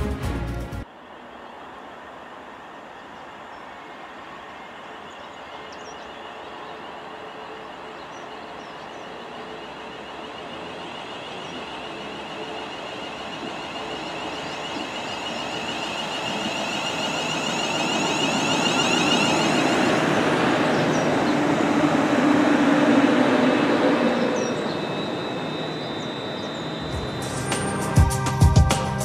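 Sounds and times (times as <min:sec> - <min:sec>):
electric train pulling in: 0:00.0 - 0:29.0
traction motors whining: 0:01.2 - 0:29.0
low hum: 0:23.6 - 0:29.0.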